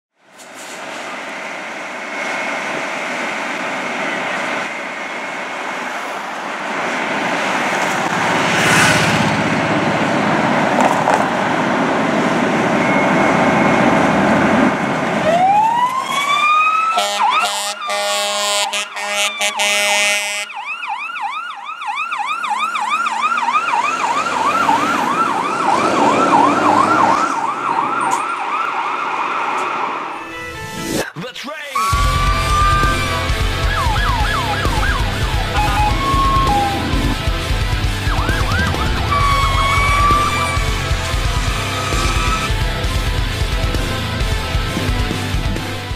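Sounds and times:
fire engine running: 0.1s - 30.8s, 31.8s - 45.9s
siren wailing: 12.4s - 30.9s, 31.8s - 42.6s
siren fast yelp: 15.2s - 29.3s, 31.8s - 37.2s, 38.0s - 42.5s
loud horn: 16.9s - 20.6s, 31.8s - 42.6s.

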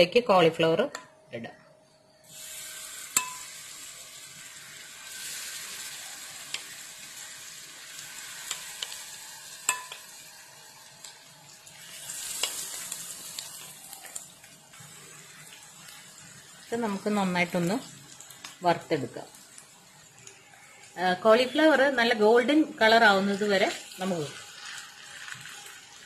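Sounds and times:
batter sizzling in hot oil: 2.2s - 26.0s
spoon clicking against pan: 9.7s - 10.1s.

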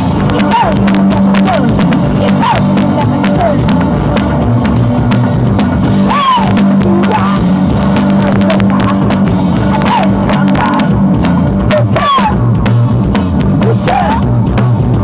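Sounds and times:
drums and cymbals: 0.0s - 15.0s
vocal cries: 0.3s - 3.7s, 5.9s - 10.9s, 13.6s - 14.3s.

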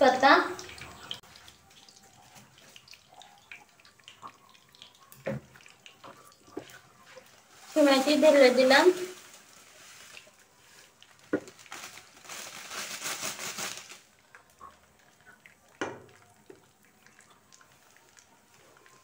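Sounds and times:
dry noodles rustling: 6.7s - 14.2s
plastic packet crinkling: 7.4s - 14.4s.

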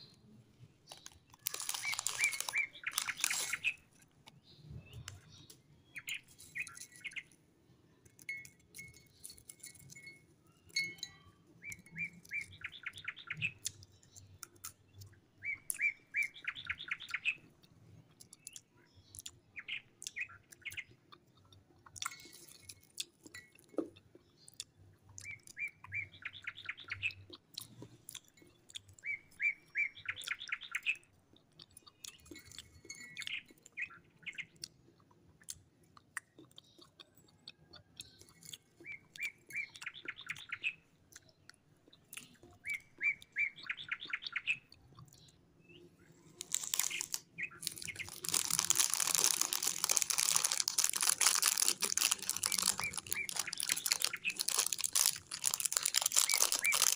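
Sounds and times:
snack wrappers crinkling: 0.8s - 5.1s, 46.2s - 56.9s
bird trilling and chirping: 0.9s - 7.4s, 8.7s - 17.5s, 25.2s - 27.3s, 28.9s - 31.0s, 38.0s - 56.9s.

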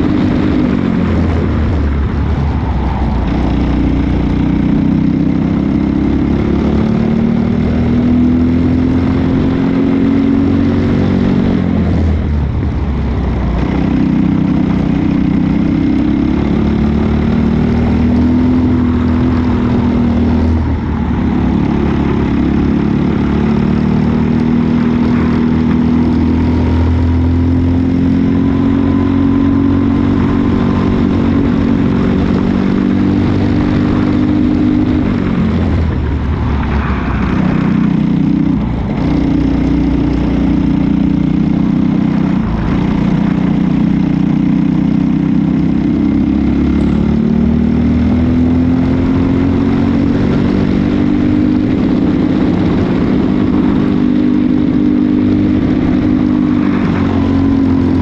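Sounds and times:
racing kart engine: 13.6s - 58.0s.

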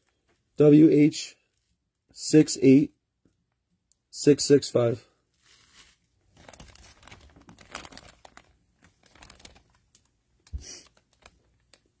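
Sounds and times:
plastic bag crinkling: 5.4s - 12.0s.

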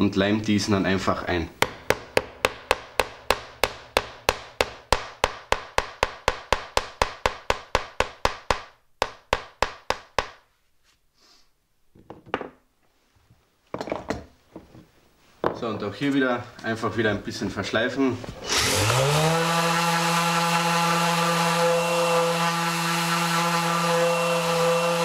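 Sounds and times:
hammer tapping wood: 1.6s - 10.4s.

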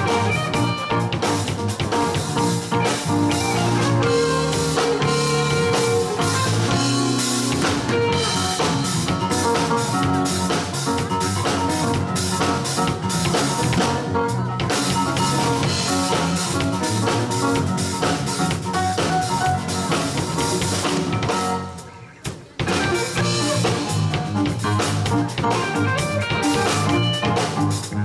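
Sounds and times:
bass guitar: 0.0s - 28.0s
drum kit: 0.0s - 28.0s
electric guitar: 0.0s - 28.0s
keyboard: 0.0s - 28.0s.

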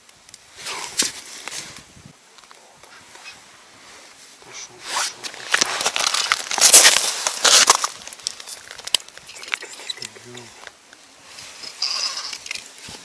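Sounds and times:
jacket sleeve rustling at microphone: 2.9s - 8.5s.

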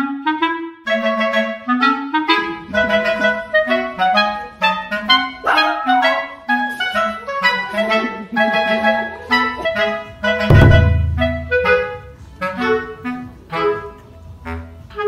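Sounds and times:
bouncy woodwind melody: 0.0s - 15.0s
repeating bass line: 10.5s - 11.9s.

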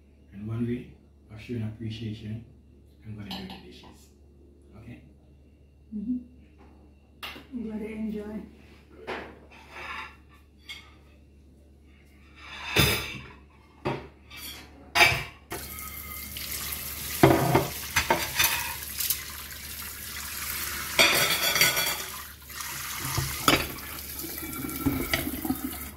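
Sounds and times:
dishes and cutlery clinking: 9.0s - 11.2s, 12.3s - 16.3s, 17.2s - 18.9s, 21.0s - 22.2s, 23.4s - 23.8s.

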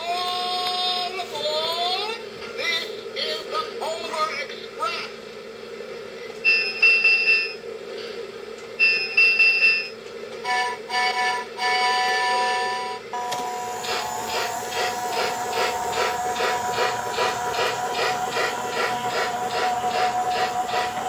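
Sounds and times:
two-note train whistle: 10.4s - 13.7s
rhythmic steam chuffing: 13.2s - 21.0s.

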